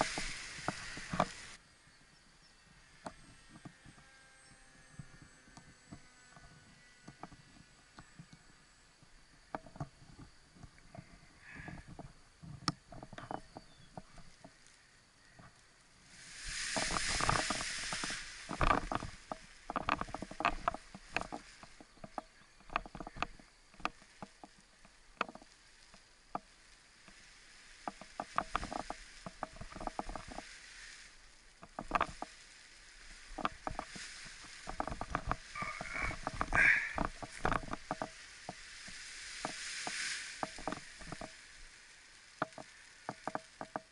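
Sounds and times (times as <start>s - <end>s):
harness clicks and rustles: 0.0s - 1.6s, 3.1s - 14.8s, 16.4s - 43.9s
wind rushing on microphone: 0.0s - 1.6s, 16.1s - 23.3s, 33.0s - 41.7s.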